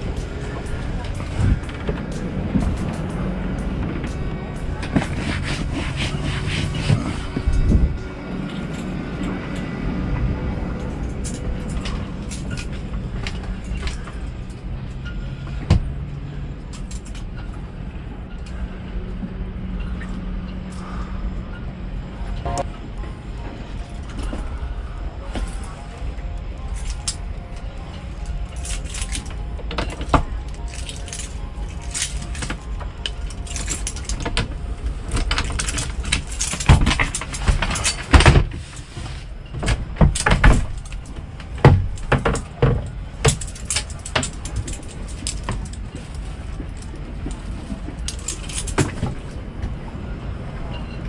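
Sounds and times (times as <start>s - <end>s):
steady low rumble: 0.0s - 51.0s
gear knocking and rattling: 26.6s - 49.4s.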